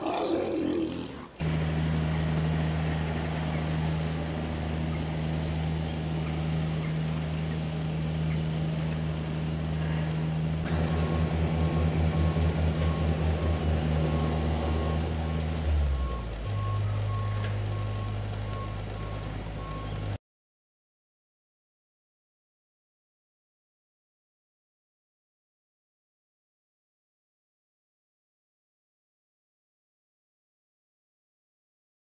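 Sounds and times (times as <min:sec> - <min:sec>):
heavy vehicle engine running: 0:01.4 - 0:20.2
reversing alarm beeping: 0:09.9 - 0:20.2.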